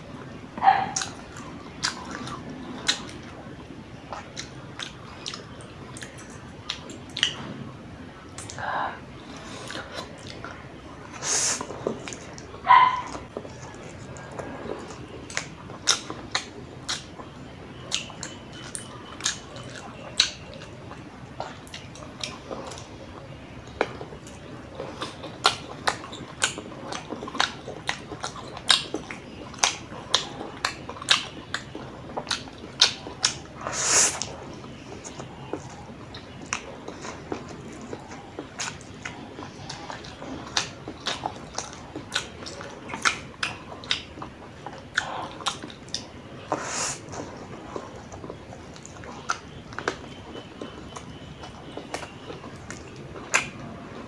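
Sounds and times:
man chewing noodles: 0.0 - 54.0
lip smacking: 0.1 - 54.0
mouth clicks: 0.6 - 3.4, 9.4 - 22.9.

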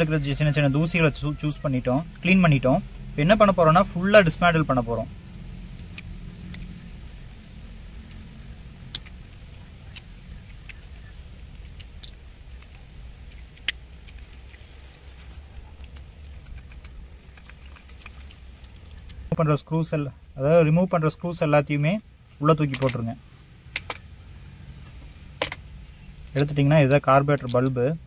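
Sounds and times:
steady low hum: 0.0 - 28.0
metallic clicks of small parts: 8.9 - 19.3, 22.3 - 24.1, 26.8 - 27.8.

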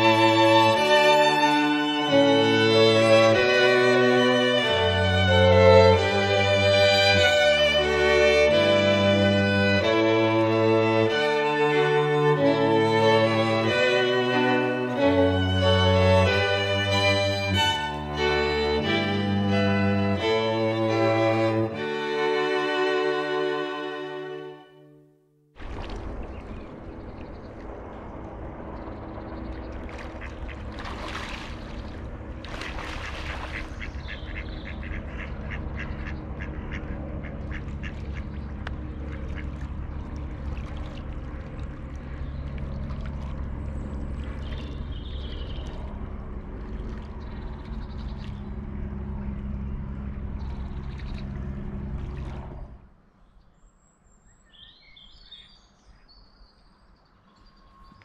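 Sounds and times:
steady low background: 0.0 - 54.0
faint songbird chirps: 28.7 - 36.3, 41.9 - 46.0, 46.7 - 58.0
ducks quacking: 30.0 - 40.2.

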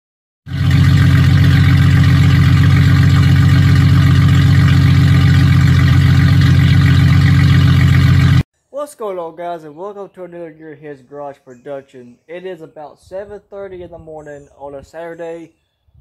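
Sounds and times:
engine running loudly: 0.5 - 8.4.

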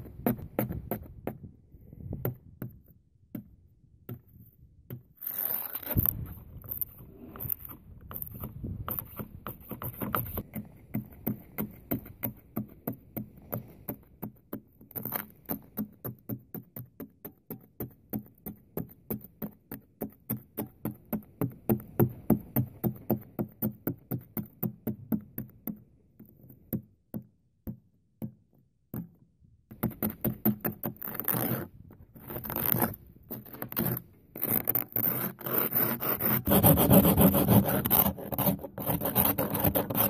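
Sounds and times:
ice scraper scraping windshield: 5.2 - 12.4, 29.9 - 40.0.

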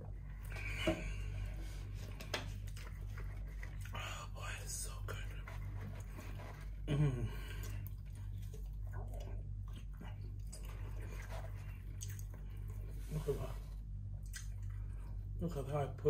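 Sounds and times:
chewing and wet squelches: 0.1 - 4.4, 5.2 - 15.4
person humming mmm: 6.8 - 7.8.

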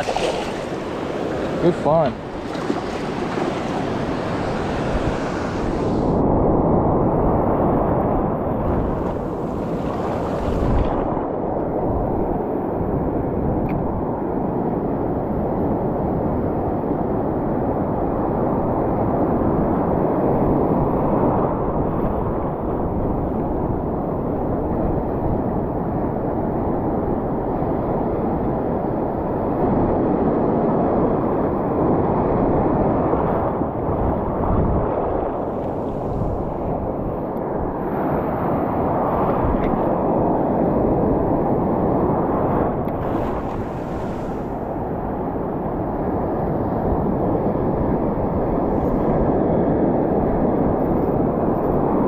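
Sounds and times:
surf breaking over reef: 0.0 - 6.2, 8.2 - 12.5, 32.8 - 50.0
wind buffeting microphone: 0.0 - 52.0.

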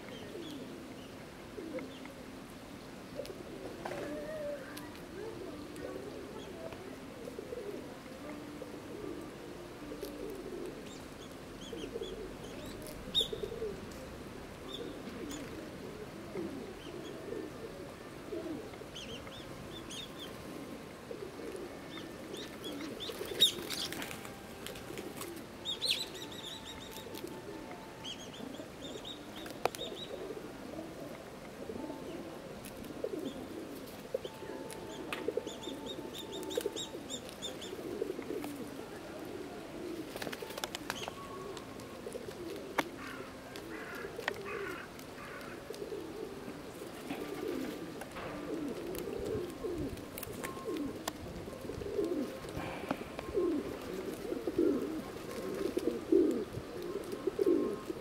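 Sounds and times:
pigeons cooing: 0.0 - 58.0
small birds chirping: 10.8 - 13.6, 25.6 - 27.4, 33.1 - 38.6.

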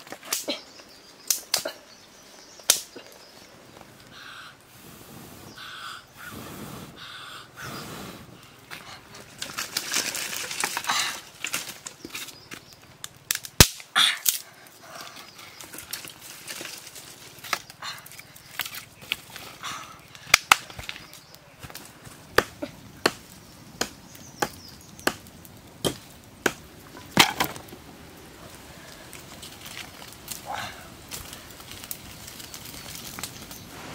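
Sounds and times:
dry sticks snapping: 0.0 - 0.6, 1.2 - 1.8, 2.6 - 3.2, 9.4 - 14.4, 15.0 - 27.7, 29.1 - 33.6.

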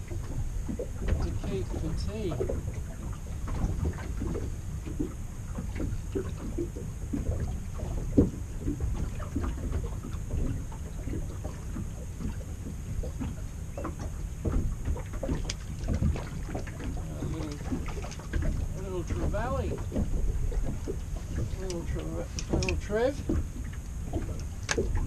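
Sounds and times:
water slapping boat hull: 0.0 - 25.0
wind rumbling on microphone: 0.0 - 25.0
light knocks and clicks: 12.6 - 25.0.

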